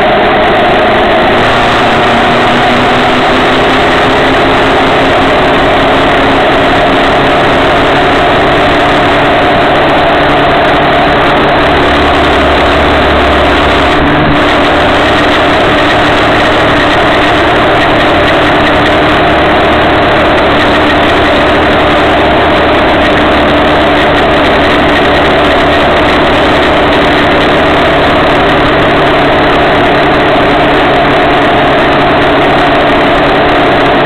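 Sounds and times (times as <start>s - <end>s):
motorcycle engine running: 0.0s - 34.0s
wind and road noise: 0.0s - 34.0s.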